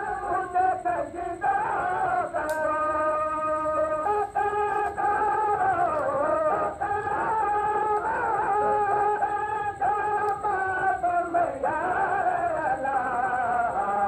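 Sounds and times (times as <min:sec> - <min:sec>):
person singing long held notes: 0:00.0 - 0:14.0.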